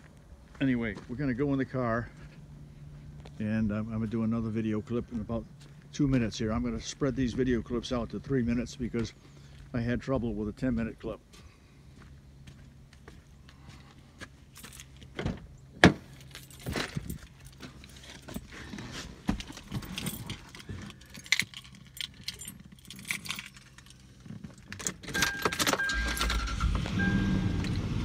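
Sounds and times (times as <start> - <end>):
car engine starting: 11.8 - 28.0
keys jangling: 16.1 - 18.5, 19.4 - 26.5.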